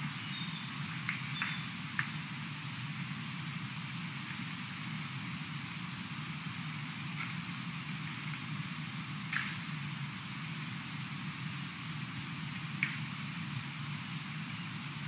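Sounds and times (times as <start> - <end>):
faint high chirps: 0.0 - 1.7
microphone hiss: 0.0 - 15.0.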